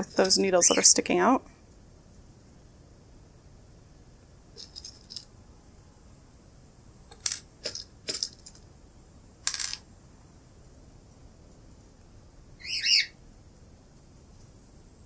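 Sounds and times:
metal pins rattling in plastic box: 0:04.6 - 0:05.3, 0:07.1 - 0:08.6, 0:09.5 - 0:09.8.

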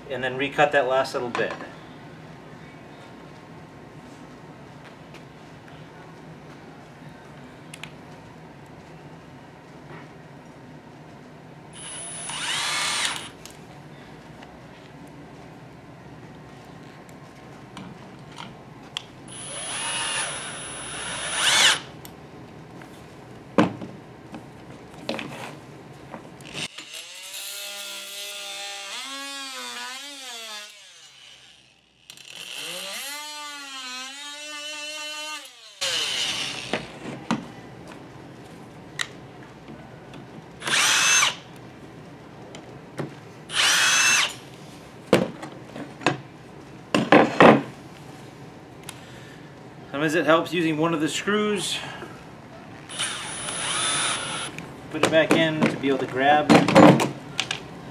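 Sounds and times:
cordless drill driving screws: 0:11.8 - 0:13.4, 0:19.3 - 0:21.9, 0:34.1 - 0:36.8, 0:40.6 - 0:41.4, 0:43.5 - 0:44.4, 0:52.9 - 0:54.5
oscillating multi-tool buzzing: 0:11.8 - 0:13.4, 0:19.3 - 0:21.9, 0:26.5 - 0:36.8, 0:40.6 - 0:41.4, 0:43.5 - 0:44.4, 0:52.9 - 0:54.5.

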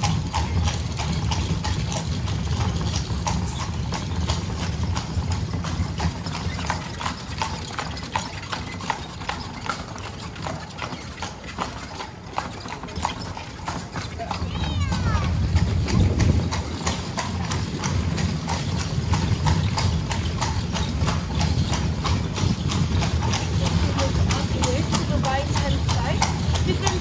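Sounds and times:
carriage wheels rumbling on cobbles: 0:00.0 - 0:27.0
hooves clip-clopping on cobblestones: 0:00.0 - 0:27.0.

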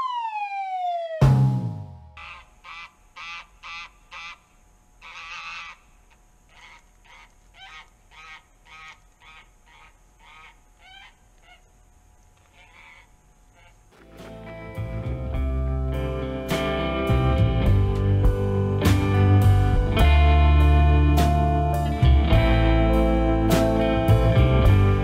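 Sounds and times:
geese honking: 0:02.2 - 0:11.7, 0:12.4 - 0:16.3.

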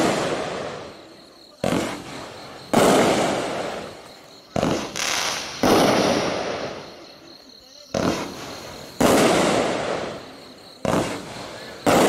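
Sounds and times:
firework bangs with rumble: 0:01.6 - 0:06.8, 0:08.0 - 0:12.0.

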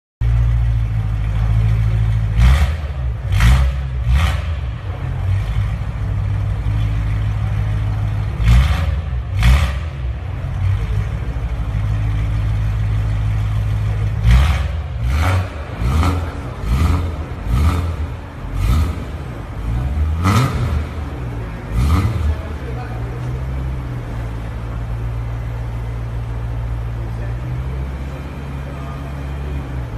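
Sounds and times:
car engine idling: 0:00.2 - 0:29.9
engine revving in sharp blips: 0:01.3 - 0:06.4, 0:07.0 - 0:12.3, 0:13.1 - 0:24.2.

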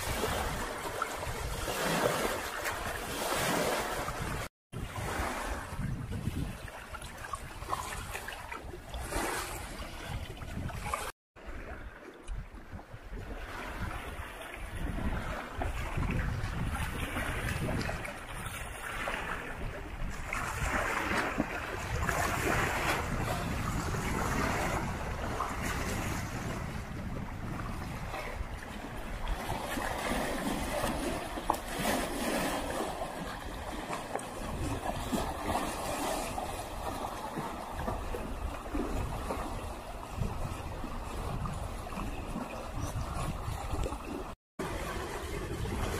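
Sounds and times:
waves lapping on rocky shore: 0:00.0 - 0:45.9
wind rumbling on microphone: 0:00.0 - 0:45.9.

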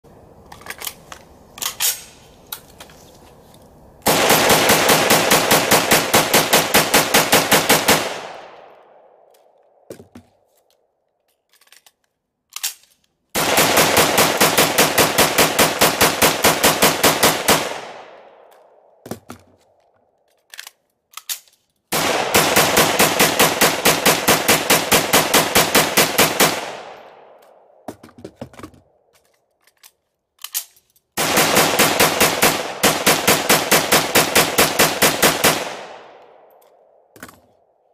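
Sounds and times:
magazine change clicks and knocks: 0:00.5 - 0:03.0, 0:08.5 - 0:13.2, 0:18.2 - 0:21.8, 0:27.0 - 0:31.0, 0:36.1 - 0:37.7
rapid rifle fire with echo: 0:04.1 - 0:09.0, 0:13.4 - 0:18.4, 0:21.9 - 0:27.4, 0:31.2 - 0:36.2.

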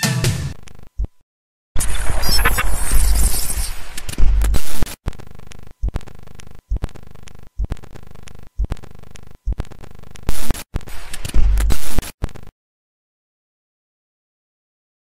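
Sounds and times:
glitchy droning tone: 0:01.8 - 0:04.8.

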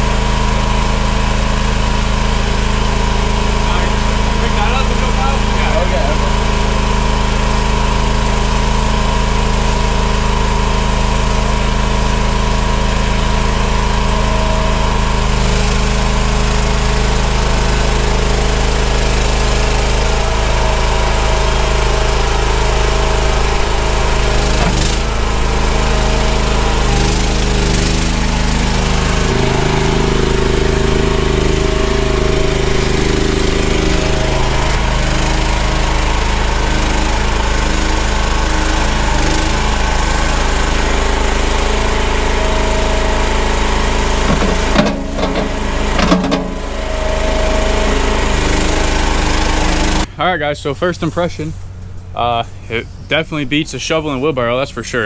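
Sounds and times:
mini skid steer engine running: 0:00.0 - 0:55.0.

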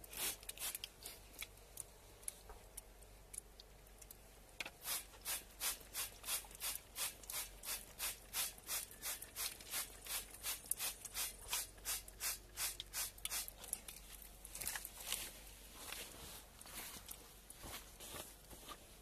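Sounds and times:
spray bottle hissing sprays: 0:00.1 - 0:00.8, 0:04.8 - 0:13.6.

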